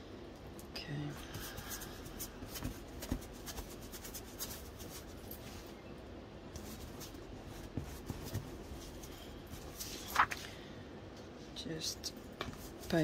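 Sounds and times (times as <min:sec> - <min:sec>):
paper rustling: 0:06.6 - 0:10.5.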